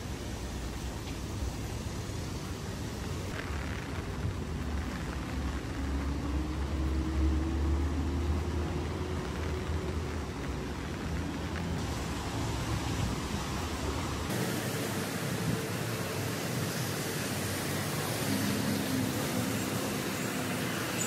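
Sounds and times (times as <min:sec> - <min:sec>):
vehicle engine rumble: 0:00.0 - 0:21.0
wet street hiss: 0:00.0 - 0:21.0.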